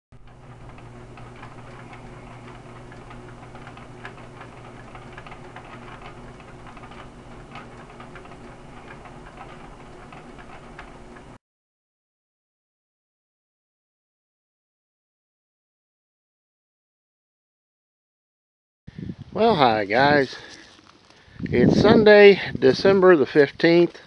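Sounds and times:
irregular ticks and clicks: 0.2 - 11.4
steady low hum: 0.2 - 11.4.

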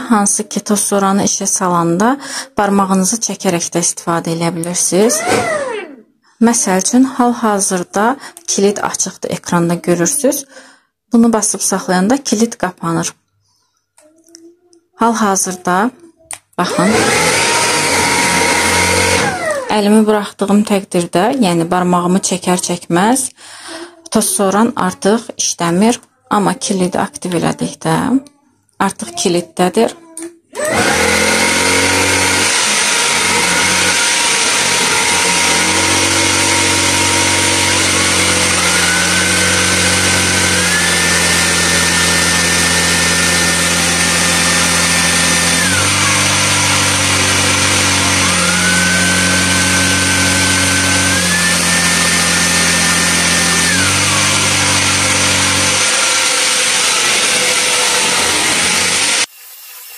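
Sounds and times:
handheld vacuum motor whine: 5.1 - 6.0, 16.7 - 19.7, 30.6 - 59.3.

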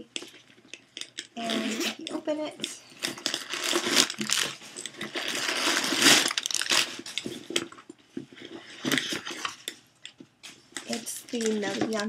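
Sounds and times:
handbag rustling and scraping: 3.0 - 7.6.

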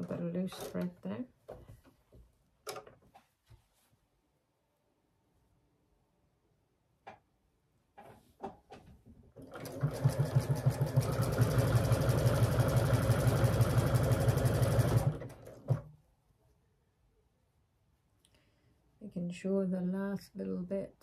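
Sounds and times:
sewing machine stitching: 0.0 - 0.9, 9.4 - 15.9.

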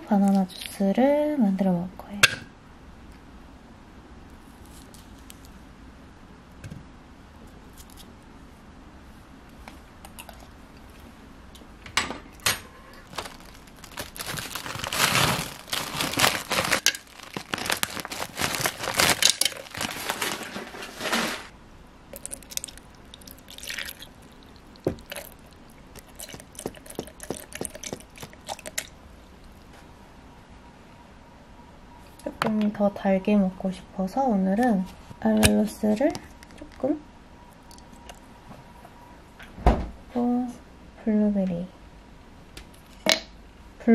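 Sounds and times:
frozen fruit clattering into blender cup: 13.1 - 21.5, 22.2 - 28.9.

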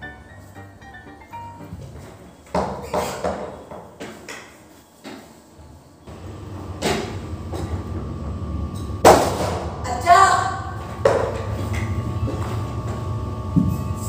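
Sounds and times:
chair scraping on tiled floor: 1.7 - 4.3, 10.7 - 14.0
sharp knock: 9.0 - 9.7.

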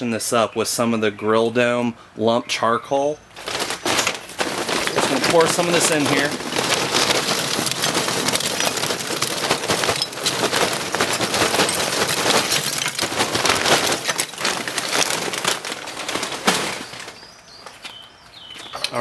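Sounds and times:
charcoal pouring and rattling: 3.4 - 17.6.

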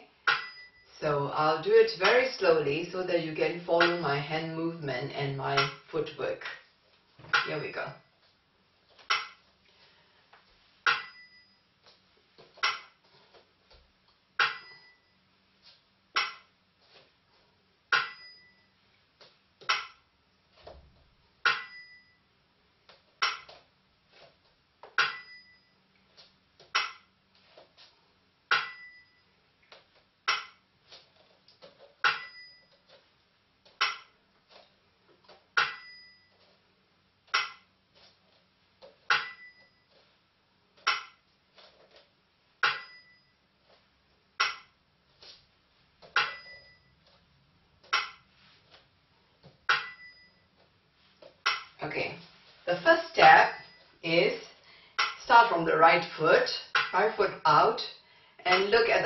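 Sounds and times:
hand bell-cymbal ringing: 42.7 - 43.3, 46.2 - 46.8, 49.8 - 50.4.

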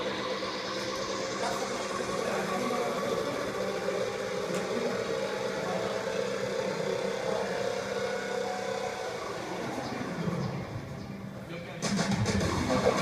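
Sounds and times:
mechanical whirring hum: 0.0 - 13.0.

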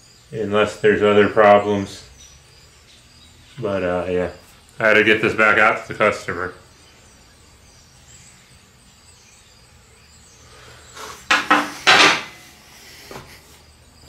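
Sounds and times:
metal clanking on steel table: 11.3 - 12.5.

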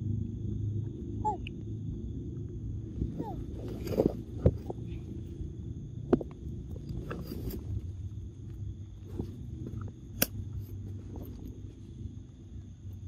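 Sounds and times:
faint high-pitched hum: 0.0 - 13.0
low outdoor rumble: 0.0 - 13.0.

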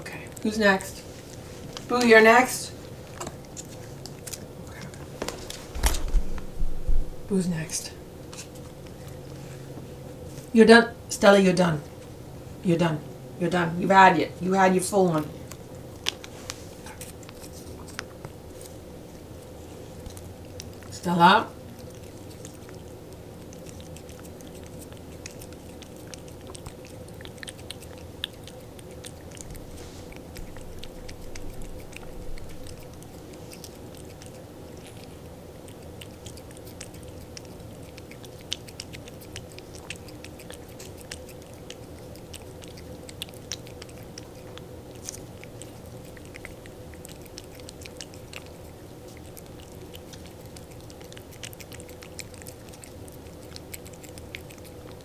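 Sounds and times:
cat licking and lapping: 0.0 - 6.5, 8.2 - 10.5, 15.0 - 55.0
low hum: 2.6 - 10.5, 16.6 - 53.4.

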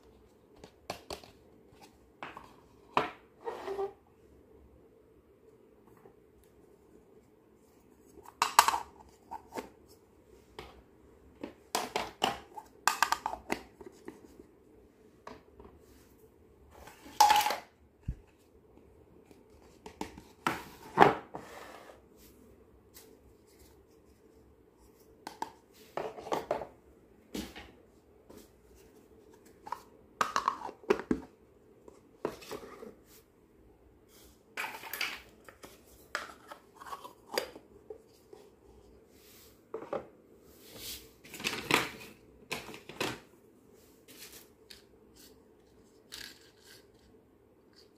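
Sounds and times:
faint steady hum: 0.0 - 47.9.

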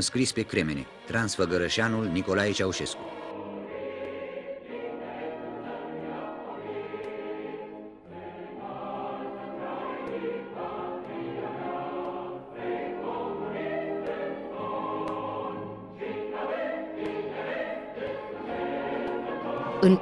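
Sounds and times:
choir singing held chords: 0.0 - 20.0.

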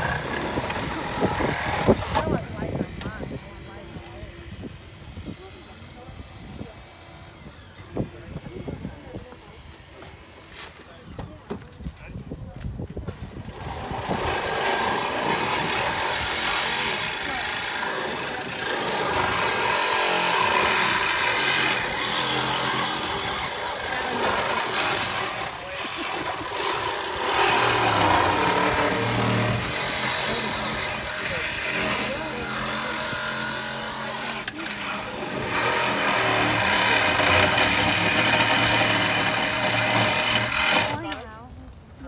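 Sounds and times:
engine running: 0.0 - 8.2, 13.4 - 41.2
hydraulic rescue tool humming: 0.0 - 10.9, 13.4 - 41.3
metal straining and grinding: 13.4 - 41.2.

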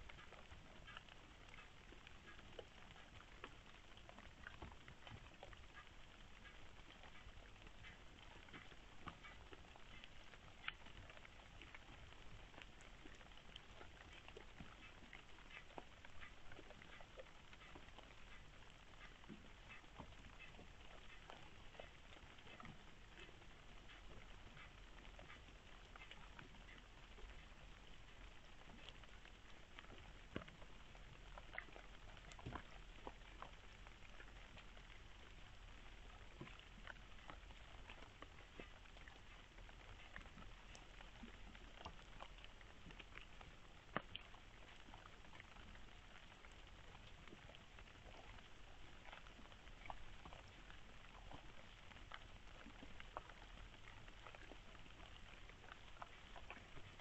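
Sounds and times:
fox foraging clicks and crackles: 0.0 - 45.4
low steady hum: 0.0 - 57.0.

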